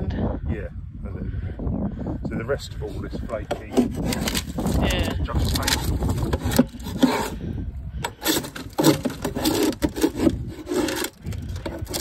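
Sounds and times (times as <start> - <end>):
scraper scraping paint: 2.8 - 7.4, 8.0 - 12.0.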